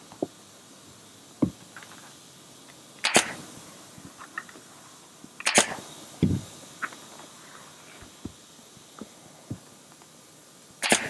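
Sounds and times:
pneumatic stapler firing: 0:03.0 - 0:03.4, 0:05.4 - 0:06.4, 0:10.8 - 0:11.0.

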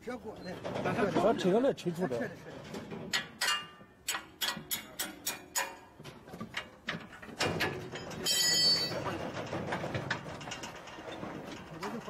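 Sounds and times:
metal scraping and rattling: 0:00.3 - 0:12.0
light metal clicks and knocks: 0:02.5 - 0:12.0.

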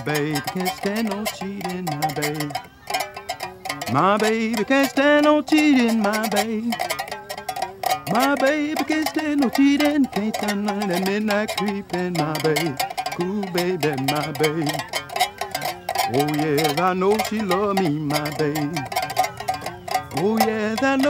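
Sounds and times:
one-string slide instrument blues: 0:00.0 - 0:21.0.

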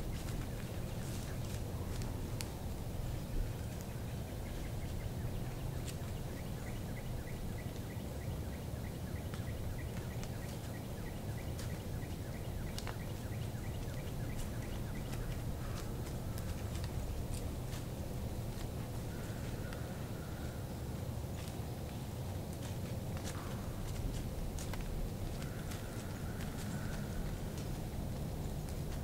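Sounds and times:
low rumble of wind: 0:00.0 - 0:29.0
light ticks: 0:12.6 - 0:17.8.

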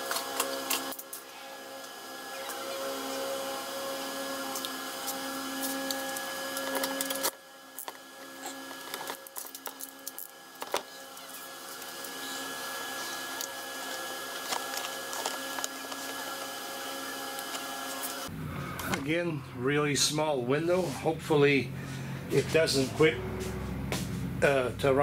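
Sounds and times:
car engine idling: 0:21.4 - 0:25.0.

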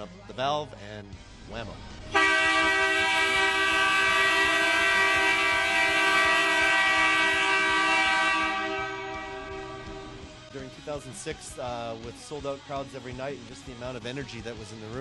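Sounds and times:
air horn chord: 0:02.1 - 0:10.5.

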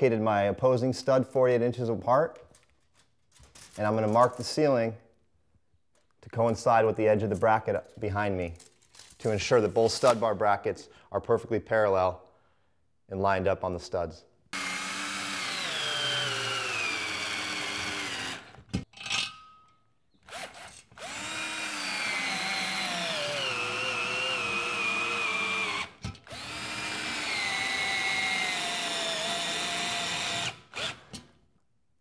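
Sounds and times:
cordless drill motor whine: 0:14.6 - 0:18.6, 0:20.3 - 0:31.1.

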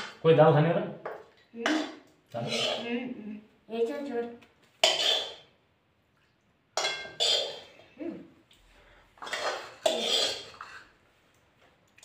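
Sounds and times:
spoon clinking on steel bowl: 0:06.8 - 0:07.6.

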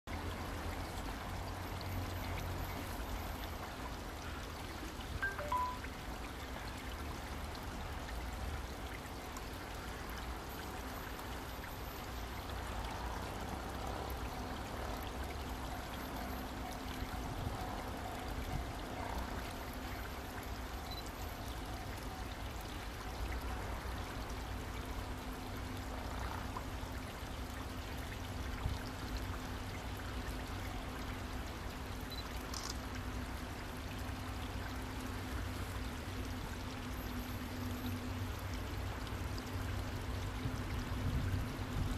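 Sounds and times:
faint short chirps: 0:05.2 - 0:05.8.

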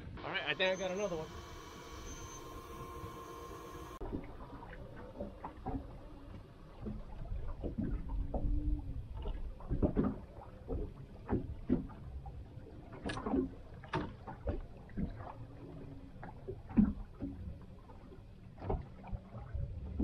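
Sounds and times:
water slapping against boat hull: 0:03.9 - 0:20.0
knocks and clunks on board: 0:09.7 - 0:12.0.

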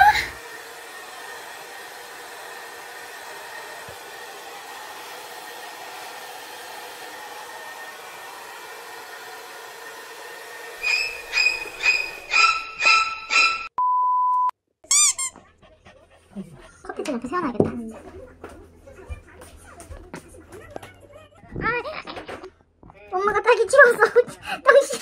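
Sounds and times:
household appliance whirring: 0:00.0 - 0:13.4
short high squeaks: 0:10.8 - 0:13.7, 0:14.9 - 0:15.4.

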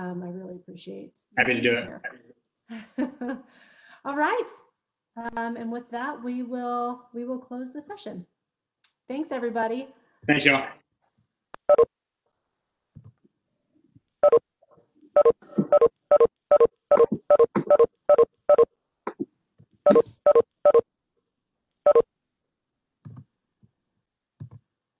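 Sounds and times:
notification chime beeps: 0:19.9 - 0:20.8.

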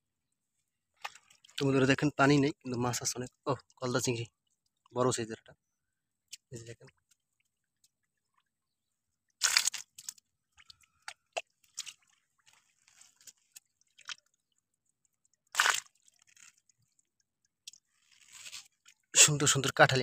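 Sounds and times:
small clicks and drips: 0:00.3 - 0:02.0, 0:02.6 - 0:19.2
wet crunching of fish net: 0:01.0 - 0:01.6, 0:09.3 - 0:19.1.

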